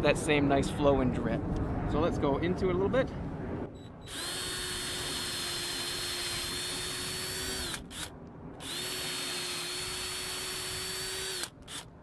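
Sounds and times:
cordless drill motor whine: 4.0s - 11.9s.

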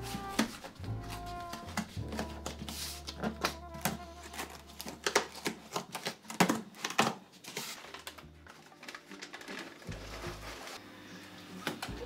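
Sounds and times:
hands rubbing foam: 0.0s - 5.0s.

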